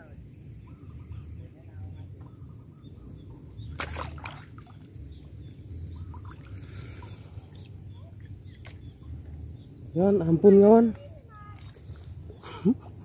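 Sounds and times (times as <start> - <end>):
steady low rumble: 0.0 - 13.0
water sloshing and splashing: 3.6 - 9.4, 10.8 - 12.4.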